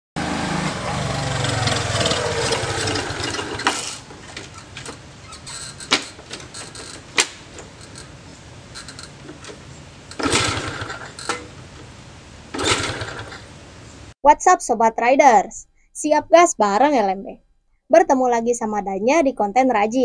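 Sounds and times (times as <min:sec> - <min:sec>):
motorcycle engine turning over: 0:00.2 - 0:13.6
engine noise: 0:00.2 - 0:14.2
sharp clicks and knocks: 0:01.4 - 0:11.9.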